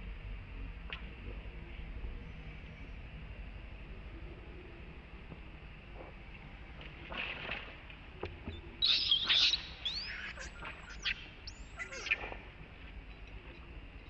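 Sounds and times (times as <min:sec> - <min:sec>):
baby monkey screaming: 0:08.8 - 0:12.3.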